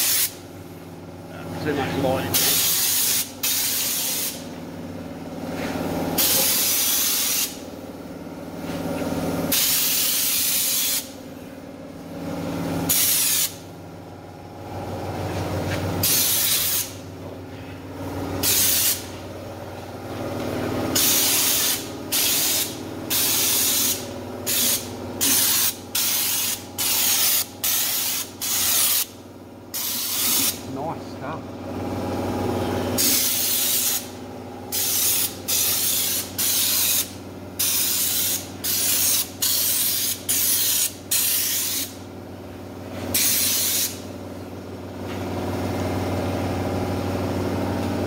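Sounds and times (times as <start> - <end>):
spray coating hissing: 0.0 - 0.4, 2.4 - 4.4, 6.2 - 7.6, 9.5 - 11.1, 12.9 - 13.6, 16.0 - 17.0, 18.4 - 19.1, 21.0 - 29.1, 33.0 - 34.1, 34.7 - 42.0, 43.1 - 44.0.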